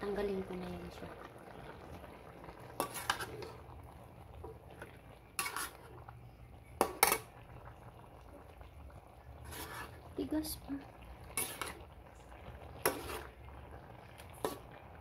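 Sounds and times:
utensil knocking and scraping a pan: 2.8s - 3.5s, 5.4s - 5.8s, 11.3s - 11.8s, 12.8s - 13.3s.

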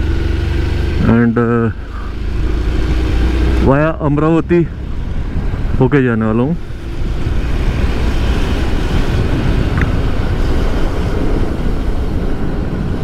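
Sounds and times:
motorcycle engine rumbling: 0.0s - 13.0s
wind noise on microphone: 2.1s - 13.0s.

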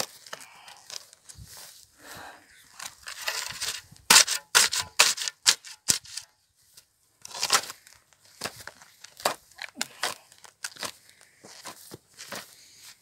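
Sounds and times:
spade scraping through soil: 2.8s - 9.5s.

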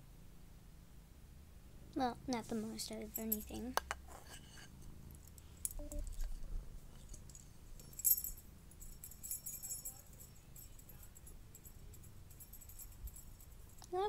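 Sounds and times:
metallic toy jingling: 3.0s - 3.7s, 7.1s - 14.0s.

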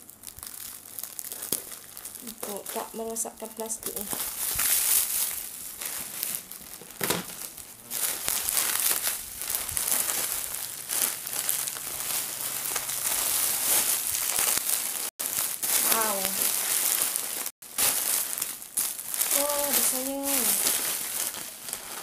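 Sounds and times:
plastic wrapping crinkling: 0.0s - 22.0s.

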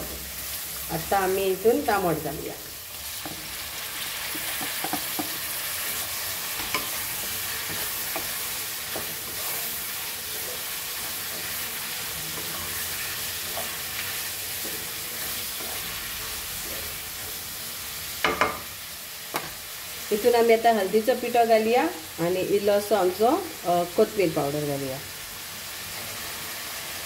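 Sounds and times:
vegetables sizzling in oil: 0.0s - 27.0s
spatula scraping a pan: 3.1s - 17.4s.

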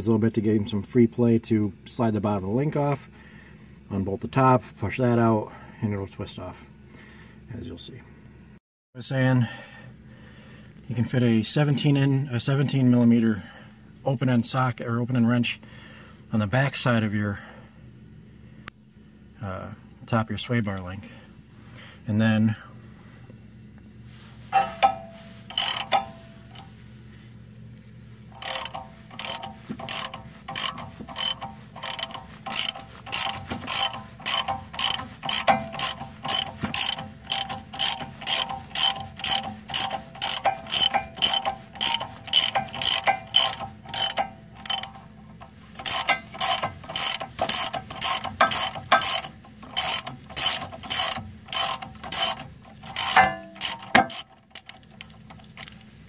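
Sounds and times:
socket ratchet clicking: 24.6s - 26.7s, 28.4s - 55.8s.

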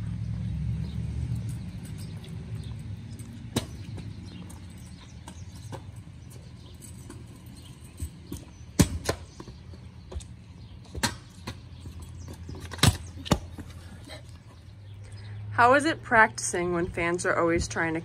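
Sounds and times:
scooter wheels rolling on concrete: 0.7s - 18.0s
scooter deck clacking on pavement: 1.6s - 13.8s.

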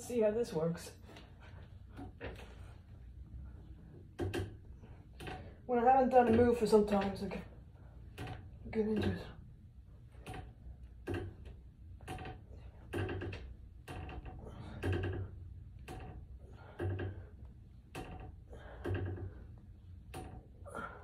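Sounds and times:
suspension strap creaking: 10.1s - 21.0s.

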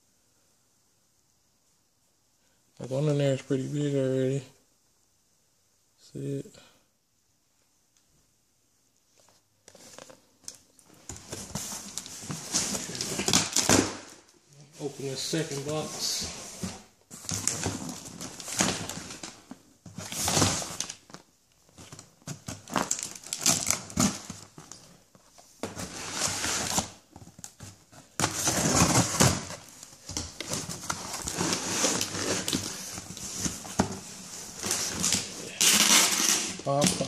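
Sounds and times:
cardboard box rustling and scraping: 30.5s - 35.3s.

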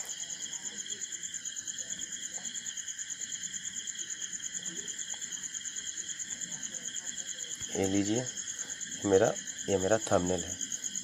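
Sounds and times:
cricket chirping: 0.0s - 11.0s.

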